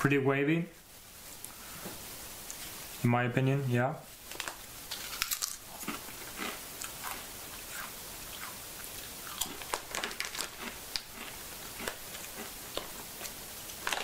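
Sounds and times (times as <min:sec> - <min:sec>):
person chewing crisps: 0:04.3 - 0:14.0.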